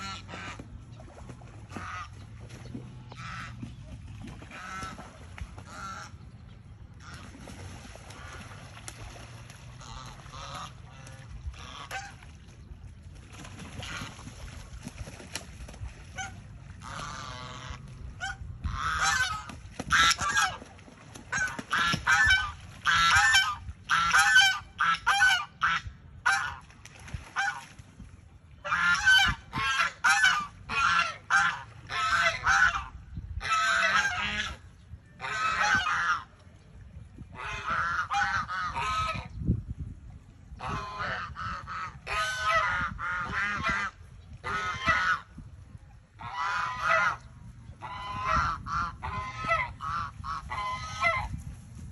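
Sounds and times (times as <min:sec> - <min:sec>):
geese honking: 0:03.1 - 0:03.6, 0:05.7 - 0:06.2, 0:09.7 - 0:12.2, 0:16.2 - 0:20.6, 0:28.6 - 0:34.6, 0:35.2 - 0:36.3, 0:40.6 - 0:45.3, 0:46.2 - 0:47.2, 0:47.8 - 0:51.3.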